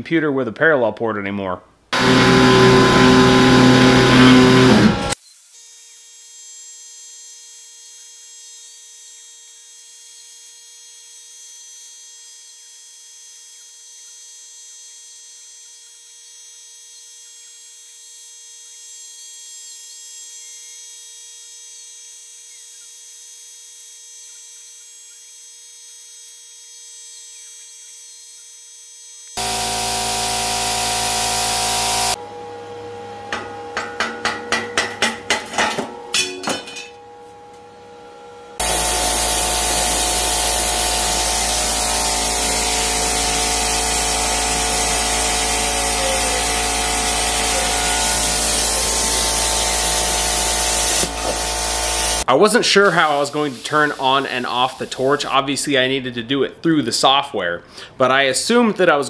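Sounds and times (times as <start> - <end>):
electrical hum: 2.0 - 5.2, 29.4 - 55.6
plasma cutter hissing: 29.4 - 32.2, 38.6 - 55.3.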